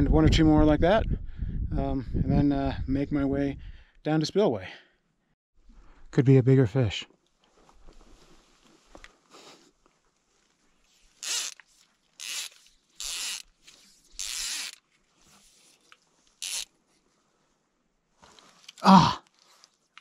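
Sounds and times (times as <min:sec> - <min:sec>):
fly line hissing through rod guides: 0:12.2 - 0:16.7.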